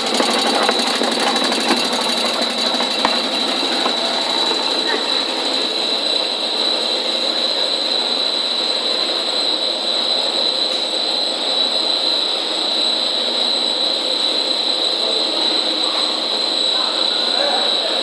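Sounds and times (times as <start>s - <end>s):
machinery din: 0.0s - 9.1s
high-pitched whine: 0.0s - 18.0s.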